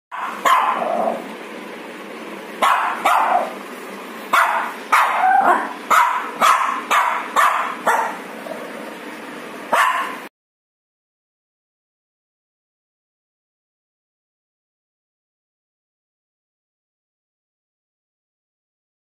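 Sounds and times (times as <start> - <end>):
puppy barking: 0.1 - 1.2, 2.6 - 3.6, 4.3 - 8.5, 9.7 - 10.3.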